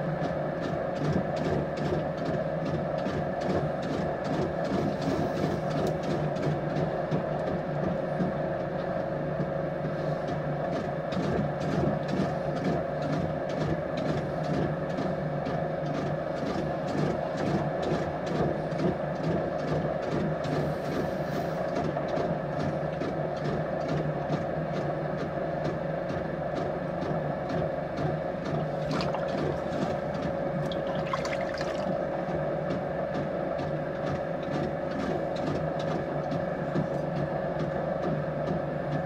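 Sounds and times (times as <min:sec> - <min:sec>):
potter's wheel humming: 0:15.6 - 0:39.0.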